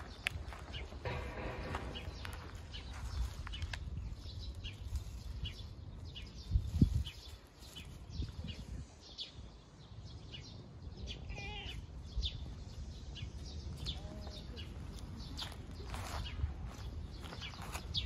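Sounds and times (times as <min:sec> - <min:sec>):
birds chirping: 0:00.0 - 0:18.0
cat meowing: 0:11.2 - 0:11.8.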